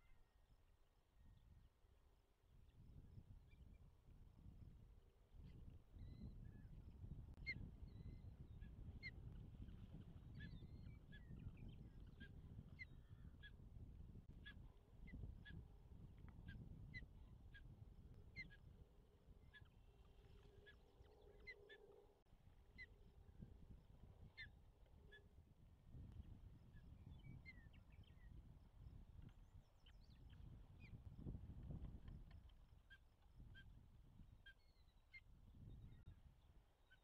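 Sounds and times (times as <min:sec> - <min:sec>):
osprey calling: 0:19.4 - 0:23.0.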